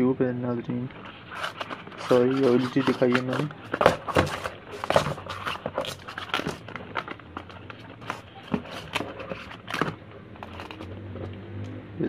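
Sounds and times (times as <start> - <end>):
cartons rummaged in cardboard box: 1.3 - 10.9.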